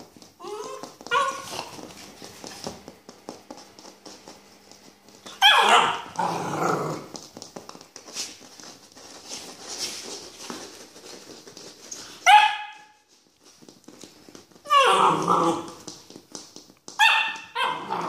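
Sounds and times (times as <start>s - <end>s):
puppy barking: 0.4s - 1.8s, 5.3s - 6.4s, 12.2s - 13.0s, 17.0s - 18.0s.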